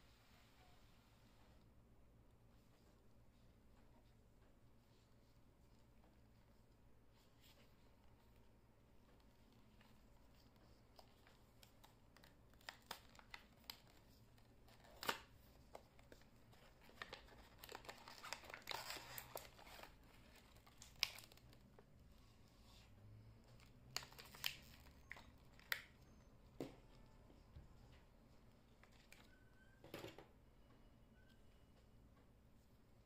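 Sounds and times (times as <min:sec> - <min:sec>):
packaging crinkling and tearing: 0:11.0 - 0:15.4, 0:16.0 - 0:21.7, 0:23.6 - 0:25.9.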